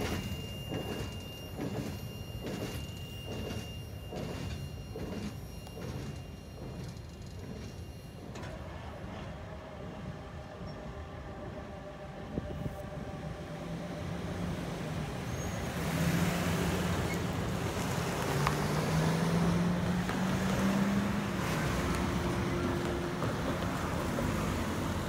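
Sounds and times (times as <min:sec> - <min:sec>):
cars driving over railroad crossing: 0:00.0 - 0:25.0
engine revving: 0:15.5 - 0:25.0.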